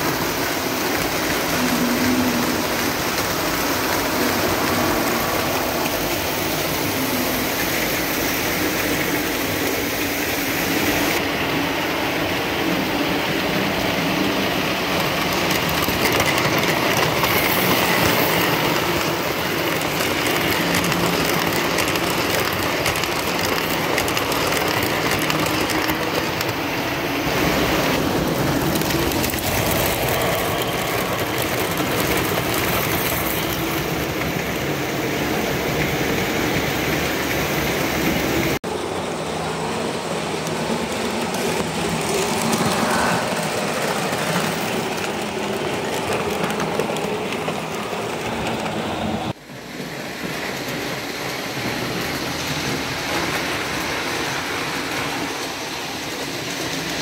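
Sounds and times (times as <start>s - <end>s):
model train wheels rattling on rails: 0.0s - 11.3s, 12.2s - 38.6s, 39.8s - 57.0s
model train motors running: 0.0s - 34.7s.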